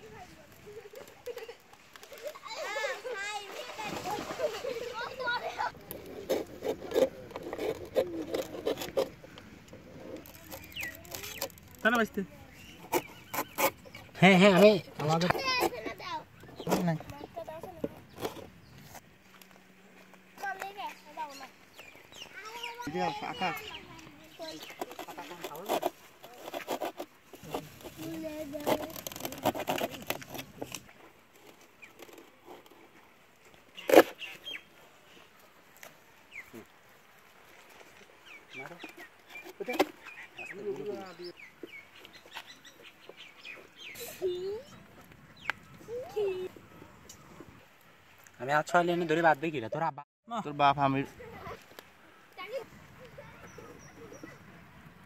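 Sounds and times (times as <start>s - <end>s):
stalks scraping through fibrous trunk: 0.0s - 48.4s.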